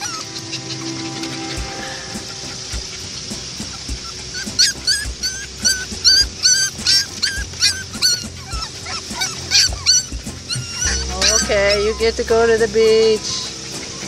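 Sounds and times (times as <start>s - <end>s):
background music with low beat: 0.0s - 14.0s
puppies whimpering and yipping: 0.0s - 14.0s.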